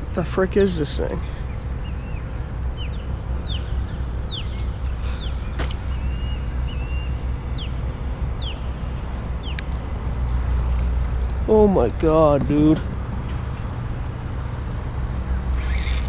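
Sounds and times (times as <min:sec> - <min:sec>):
birds chirping: 0:00.0 - 0:11.6
steady low rumble: 0:00.0 - 0:15.8
whistled bird notes: 0:04.3 - 0:07.8.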